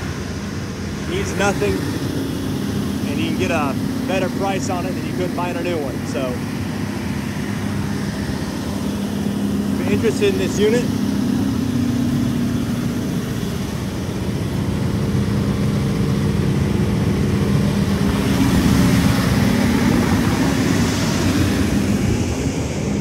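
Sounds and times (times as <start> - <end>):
diesel generator droning: 0.0 - 23.0.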